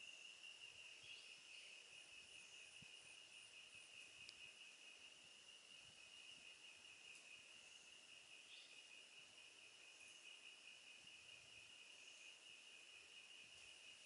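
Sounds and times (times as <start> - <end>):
insects droning: 0.0 - 14.0.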